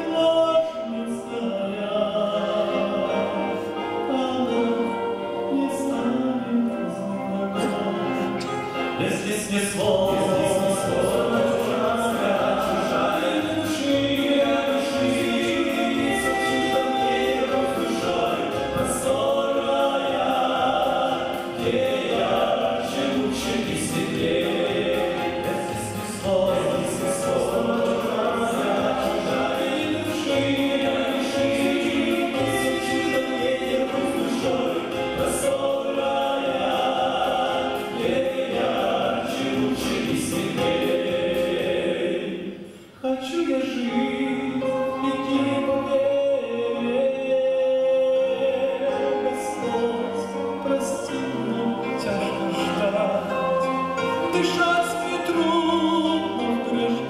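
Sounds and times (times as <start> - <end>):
group singing in harmony: 0.0 - 57.0.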